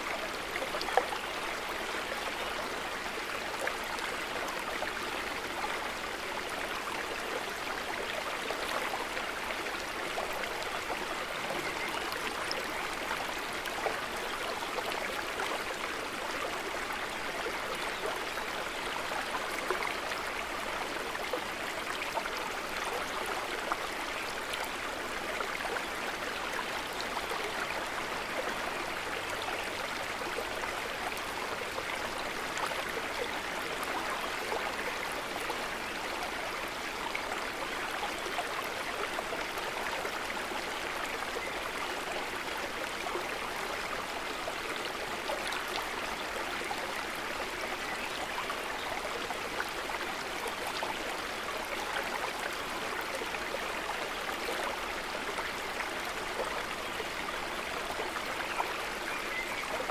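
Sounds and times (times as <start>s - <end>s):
river flowing: 0.0s - 59.9s.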